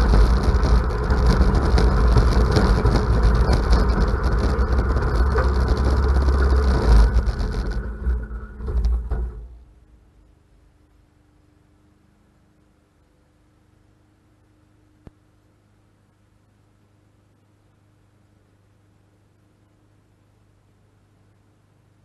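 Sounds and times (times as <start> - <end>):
riding mower engine running: 0.0 - 10.1.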